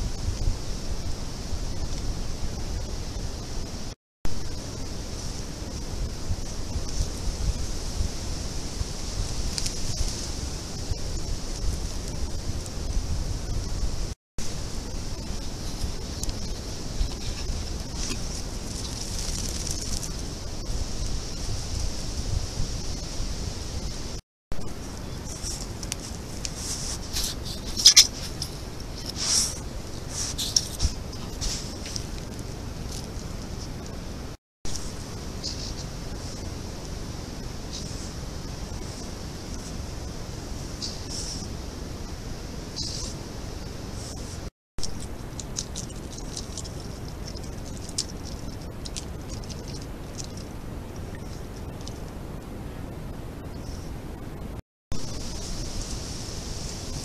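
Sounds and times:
microphone hiss: 0:00.0 - 0:57.0
animal rustling against camera: 0:14.5 - 0:22.0, 0:24.8 - 0:41.6, 0:43.8 - 0:52.2.

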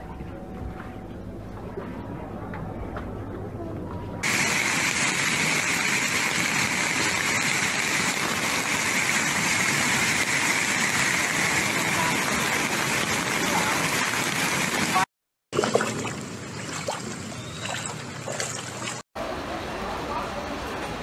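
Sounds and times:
floodwater rushing: 0:04.2 - 0:19.7.

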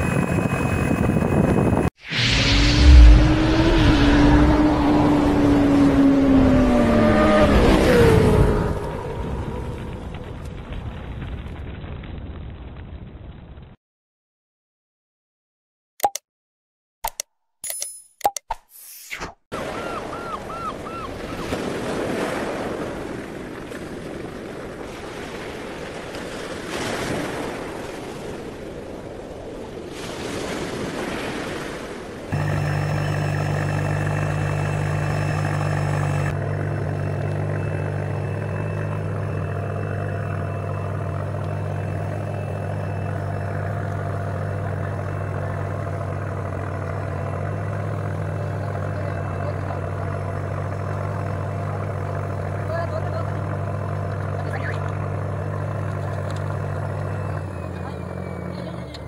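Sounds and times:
wind noise on microphone: 0:00.0 - 0:05.0
boat engine droning: 0:00.0 - 0:10.4, 0:19.6 - 0:59.0.

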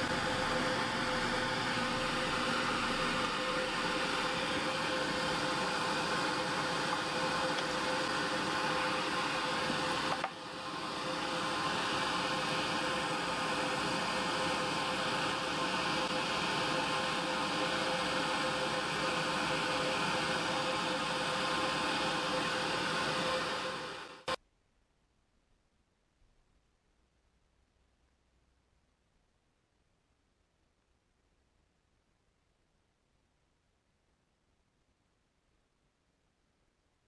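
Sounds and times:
workshop machine humming: 0:00.0 - 0:24.4.

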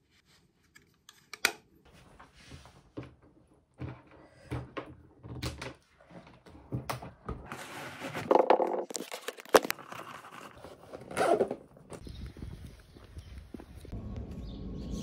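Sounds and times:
rustling or scraping: 0:07.3 - 0:14.0.

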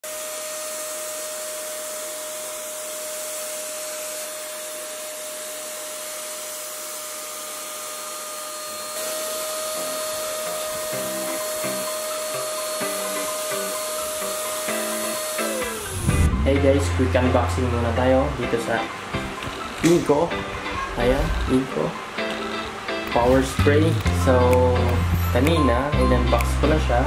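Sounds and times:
paint spray gun motor whine: 0:00.0 - 0:19.8
paint spraying hiss: 0:09.0 - 0:16.1
background music: 0:09.6 - 0:27.0.

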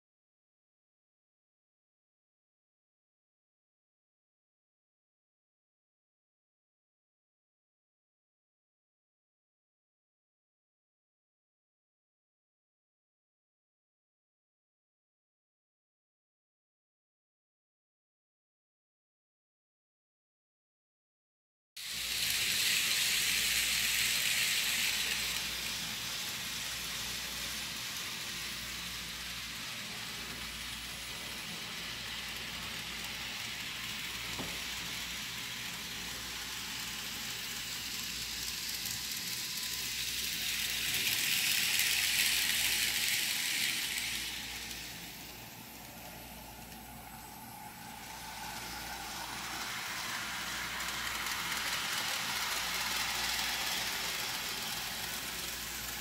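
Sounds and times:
model train motor whirring on rails: 0:21.8 - 0:56.0.

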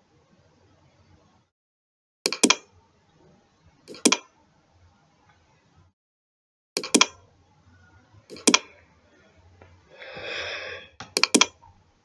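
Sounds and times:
computer mouse clicking: 0:02.3 - 0:02.6, 0:03.9 - 0:04.3, 0:06.8 - 0:07.2, 0:08.3 - 0:08.7, 0:11.0 - 0:11.6
breath out through nose: 0:09.9 - 0:11.0.

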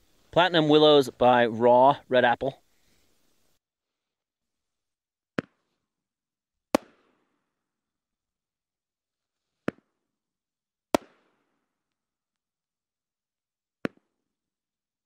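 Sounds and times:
firework launch pop: 0:11.0 - 0:11.4.

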